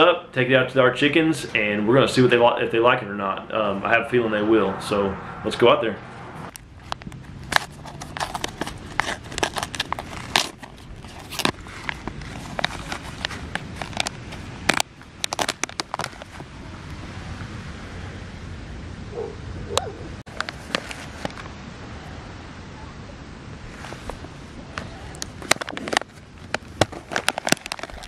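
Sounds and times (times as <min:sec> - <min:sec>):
plastic pouch crinkling: 0:06.5 - 0:16.4, 0:25.2 - 0:28.0.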